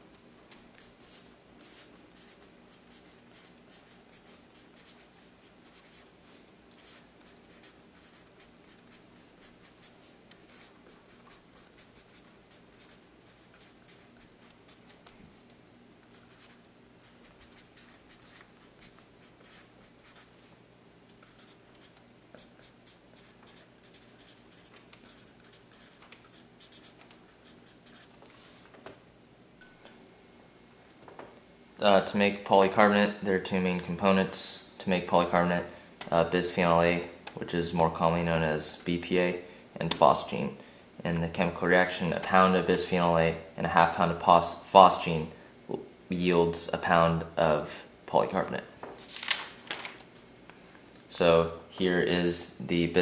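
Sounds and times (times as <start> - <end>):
faint low hum: 0.0 - 53.0
marker writing on paper: 0.8 - 6.1, 6.8 - 15.0, 16.1 - 20.4, 21.2 - 28.1.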